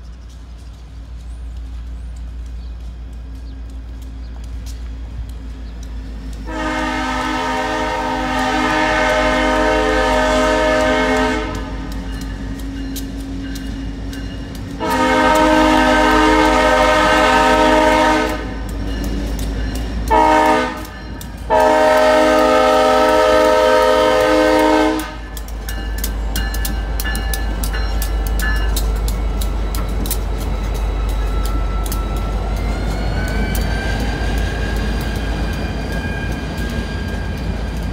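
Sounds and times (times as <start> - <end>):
locomotive air horn blasts: 6.5 - 12.0, 14.8 - 18.6, 20.1 - 25.4.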